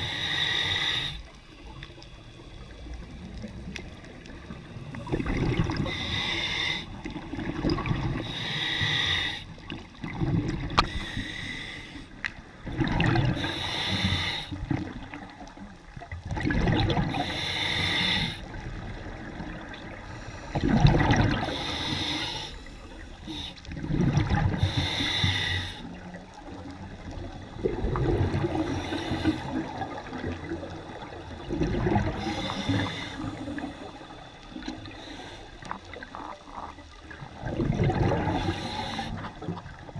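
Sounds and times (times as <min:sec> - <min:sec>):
diver inhaling through regulator: 0:00.0 - 0:01.4, 0:04.9 - 0:07.1, 0:08.0 - 0:09.6, 0:10.8 - 0:12.2, 0:13.2 - 0:14.7, 0:17.0 - 0:18.6, 0:20.0 - 0:26.1, 0:27.4 - 0:29.8, 0:31.9 - 0:36.0, 0:37.9 - 0:39.7
exhaust bubbling underwater: 0:02.6 - 0:06.3, 0:06.9 - 0:08.4, 0:09.6 - 0:10.9, 0:12.4 - 0:13.8, 0:16.0 - 0:17.4, 0:18.5 - 0:21.9, 0:23.3 - 0:25.0, 0:25.9 - 0:35.0, 0:35.7 - 0:39.9.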